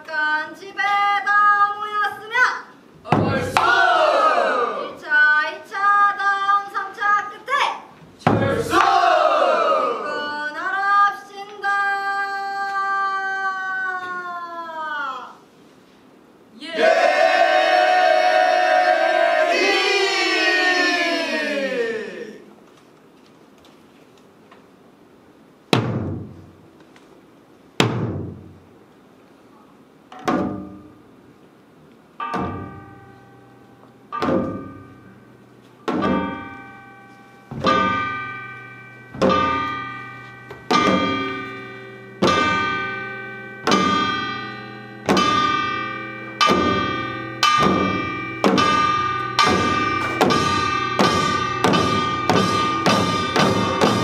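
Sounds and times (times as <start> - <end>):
drums and metal percussion hits: 3.0 - 4.0, 8.2 - 9.1, 25.7 - 26.7, 27.8 - 28.7, 30.1 - 31.2, 32.2 - 33.2, 34.1 - 54.0.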